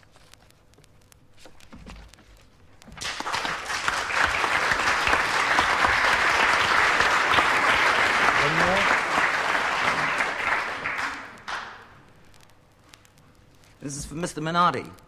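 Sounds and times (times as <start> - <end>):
audience applause: 3.0 - 12.0.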